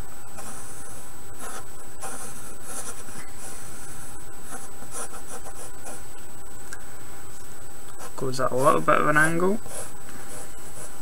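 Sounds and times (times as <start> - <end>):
steady background hiss: 0.0 - 11.0
pencil scratching on paper: 0.4 - 6.0, 8.0 - 11.0.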